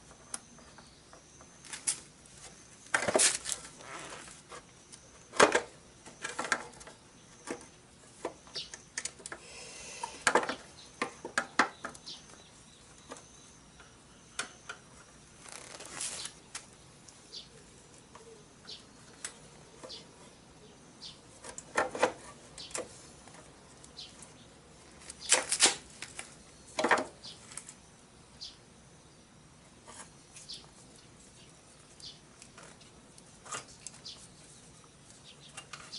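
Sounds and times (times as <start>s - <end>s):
rustling: 1.6s - 4.7s, 15.4s - 16.7s.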